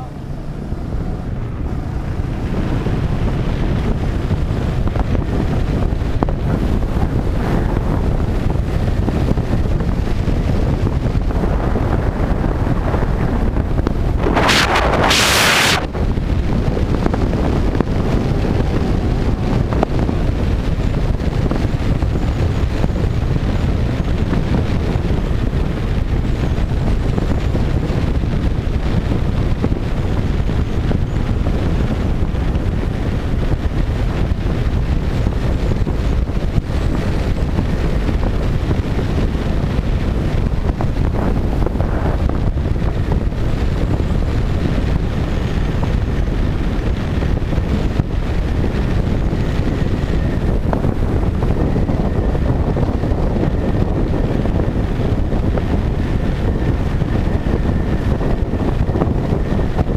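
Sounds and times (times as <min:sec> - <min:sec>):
wind buffeting microphone: 0:00.0 - 0:59.9
bright hissing rush: 0:14.1 - 0:15.9.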